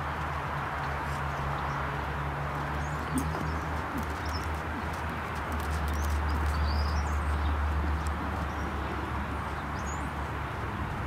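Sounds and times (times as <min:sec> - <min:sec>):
horse hoofbeats: 0:02.6 - 0:07.2.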